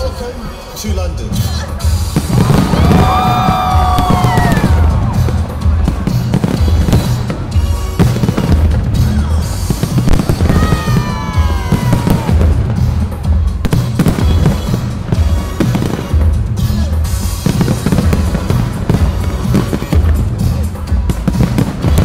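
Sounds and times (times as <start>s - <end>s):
fireworks bangs and crackles: 0.9s - 22.0s
music with pulsing bass beat: 0.9s - 22.0s
falling firework whistles: 2.2s - 5.3s, 10.0s - 12.4s.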